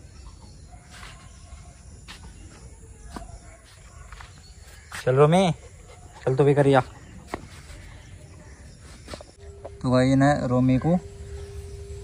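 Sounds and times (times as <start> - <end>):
low outdoor rumble: 9.3 - 12.0.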